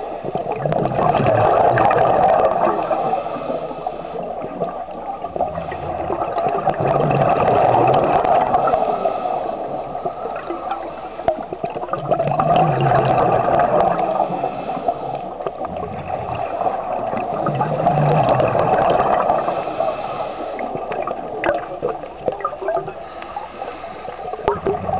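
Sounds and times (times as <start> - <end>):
underwater bubbles gurgling: 0.0 - 24.9.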